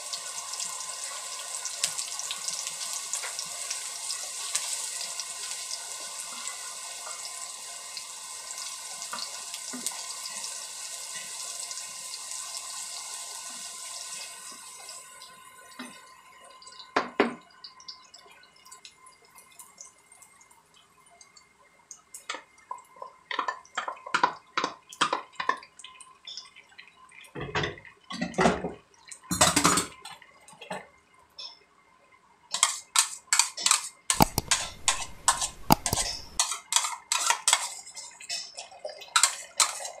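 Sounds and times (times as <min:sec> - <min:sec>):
aromatics sizzling in hot oil: 0:00.0 - 0:27.4, 0:32.5 - 0:40.0
utensils clattering against pan: 0:32.6 - 0:40.0.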